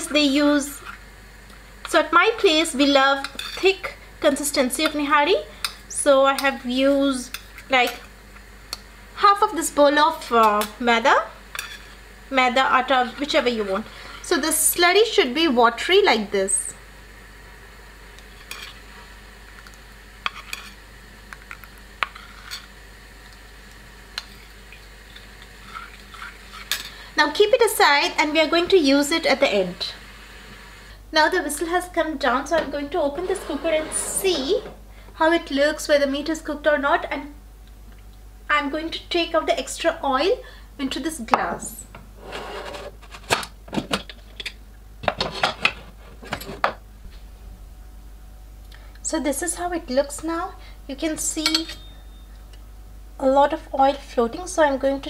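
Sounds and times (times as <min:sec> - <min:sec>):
spoon clinking on metal bowl: 0:51.4 - 0:52.3.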